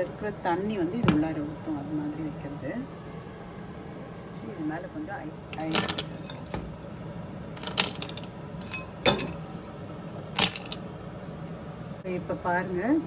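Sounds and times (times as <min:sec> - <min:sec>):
steady low hum: 0:00.0 - 0:13.0
ice cubes clinking on glass lid: 0:07.6 - 0:09.4.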